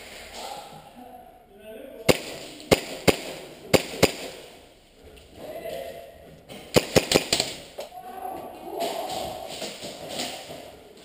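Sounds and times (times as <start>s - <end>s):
airsoft pistol shots: 2.1s - 4.4s, 6.7s - 7.7s.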